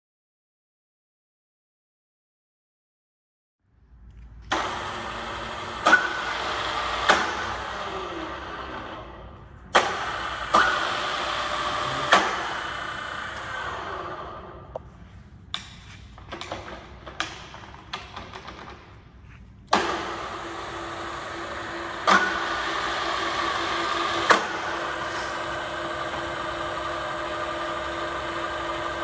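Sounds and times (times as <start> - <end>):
drill press motor running: 4.5 - 9.2, 9.8 - 14.6, 19.7 - 29.0.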